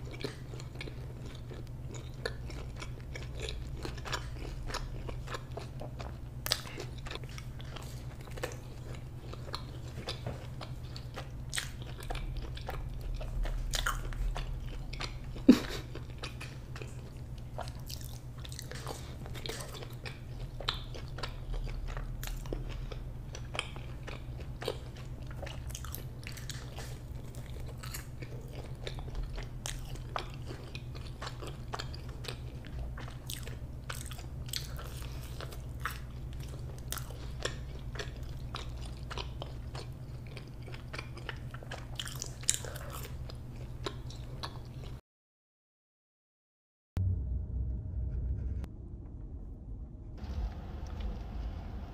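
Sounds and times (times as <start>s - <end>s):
low hum: 0.0s - 30.2s, 47.0s - 51.9s
person chewing crunchy food: 0.0s - 45.0s.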